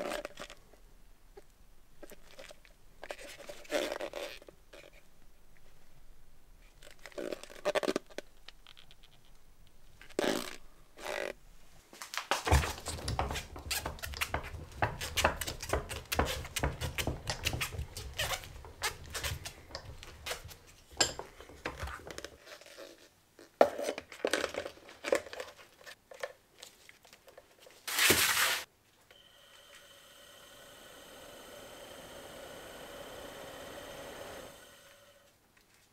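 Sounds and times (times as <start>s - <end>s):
plastic and metal clattering: 12.4s - 22.4s.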